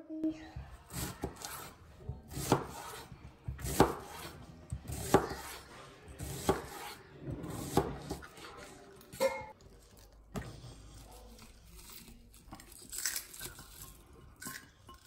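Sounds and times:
knife slicing onion on board: 0:00.8 - 0:09.4.

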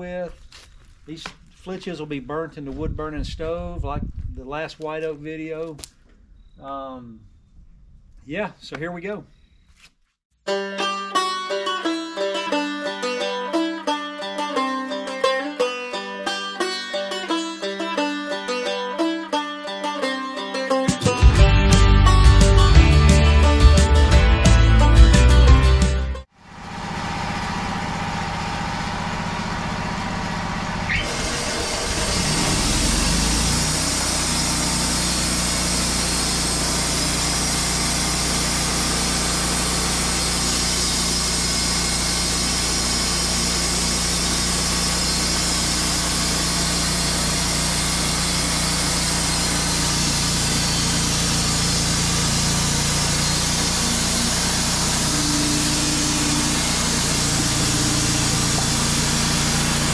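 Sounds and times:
sawmill engine revving: 0:20.0 - 0:59.9.

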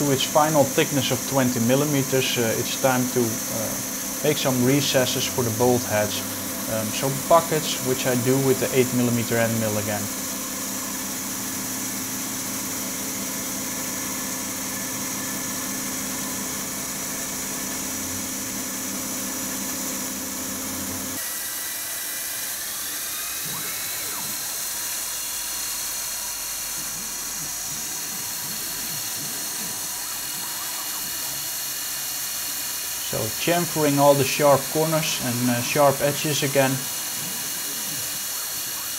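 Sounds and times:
high spindle tone: 0:00.0 - 0:10.4, 0:33.0 - 0:38.9
milling machine cutting metal: 0:00.0 - 0:38.9.

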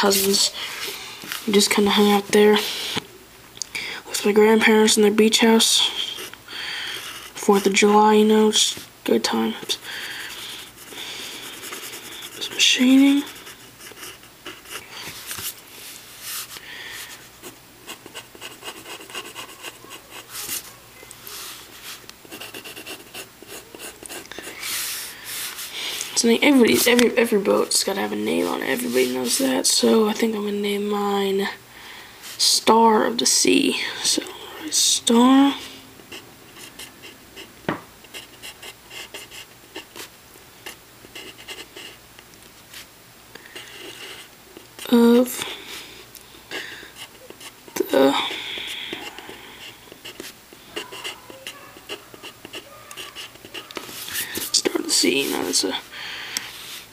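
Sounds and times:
pencil scratching on paper: 0:05.4 - 0:08.6, 0:09.4 - 0:15.6, 0:16.2 - 0:25.7, 0:26.3 - 0:30.2, 0:38.1 - 0:42.0, 0:47.0 - 0:55.7.

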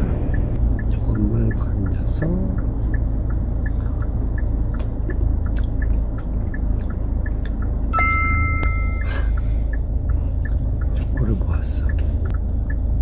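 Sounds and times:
car interior engine hum: 0:00.0 - 0:13.0
faint regular ticking: 0:00.2 - 0:13.0
two-tone electronic beep: 0:07.9 - 0:09.2.

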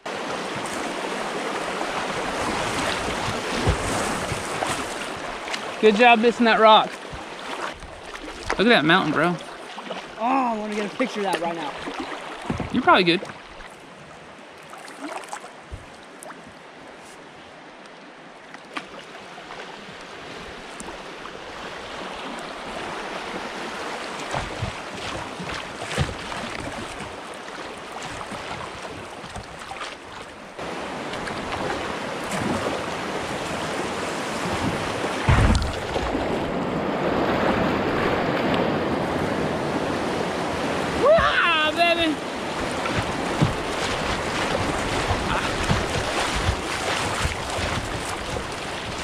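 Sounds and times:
river rapid rushing and splashing: 0:00.0 - 0:49.0
knocks against boat hull: 0:12.4 - 0:12.8, 0:42.6 - 0:49.0.

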